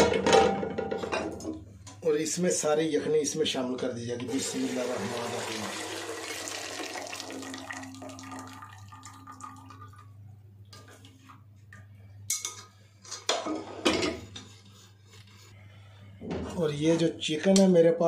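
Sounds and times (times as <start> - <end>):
liquid pouring through strainer: 4.3 - 10.1
dripping: 4.5 - 10.1
metal kitchenware clinking: 12.3 - 14.2.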